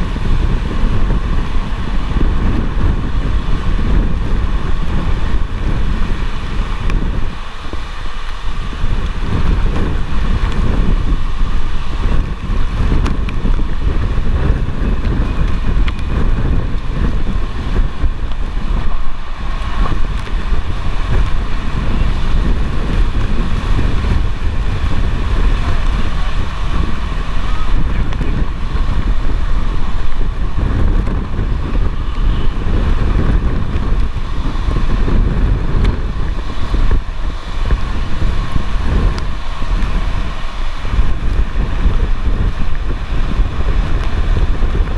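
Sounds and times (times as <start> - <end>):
tornado winds buffeting vehicle: 0.0 - 44.9.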